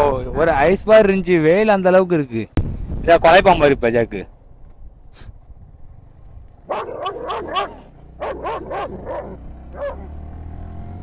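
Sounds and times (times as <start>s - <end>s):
dog barking: 6.6s - 10.2s.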